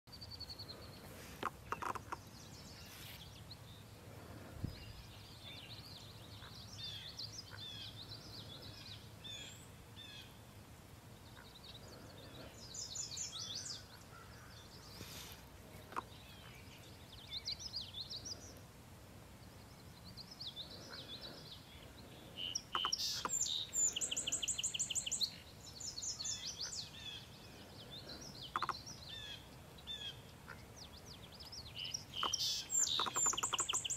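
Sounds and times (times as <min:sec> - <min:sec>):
faint outdoor hiss: 0:00.1 - 0:33.9
birds chirping and singing: 0:19.5 - 0:33.9
loud rapid bird trill: 0:28.3 - 0:30.2, 0:31.8 - 0:33.9.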